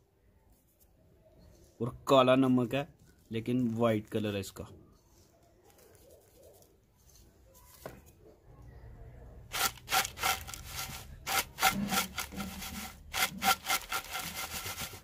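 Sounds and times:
chips rattling in clay bowl: 0:09.5 - 0:15.0.

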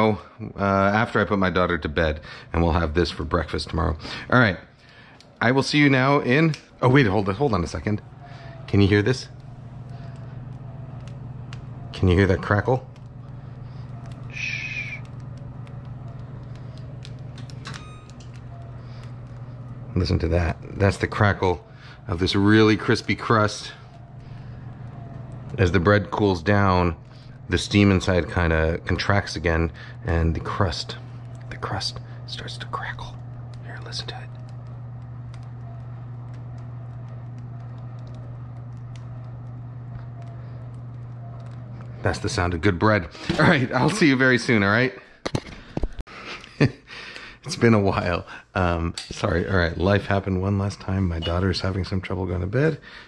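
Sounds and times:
low steady hum: 0:00.0 - 0:53.0
bread crust crackling: 0:00.6 - 0:44.6.

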